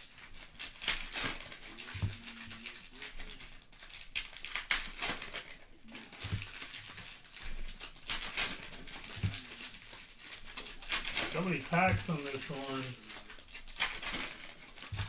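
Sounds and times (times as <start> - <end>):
card packs crinkling and rustling: 0.0 - 15.0.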